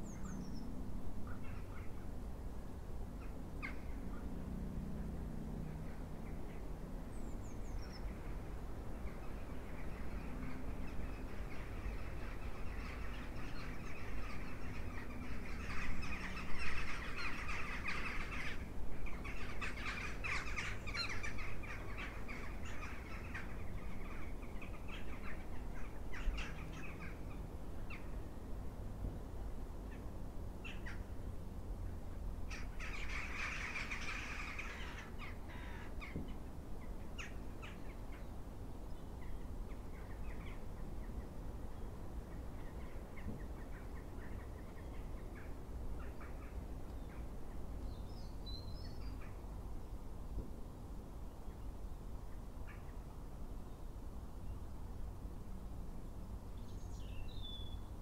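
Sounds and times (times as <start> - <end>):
crows cawing: 32.5 - 36.1.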